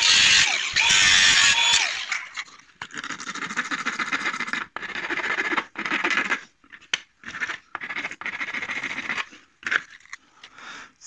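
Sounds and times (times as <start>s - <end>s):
file rasping on plastic: 7.2s - 9.9s.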